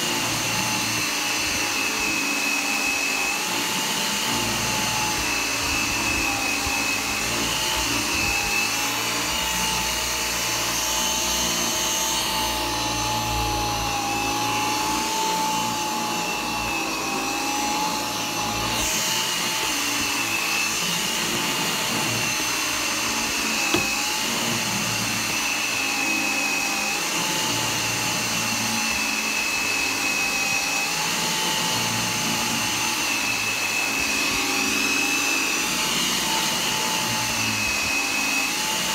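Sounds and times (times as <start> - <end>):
vacuum cleaner motor whine: 0.0 - 38.9.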